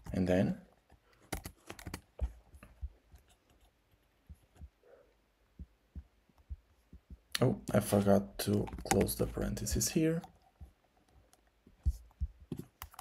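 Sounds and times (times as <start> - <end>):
keyboard keystrokes and clicks: 1.2 - 4.8, 5.6 - 9.9, 11.3 - 13.0.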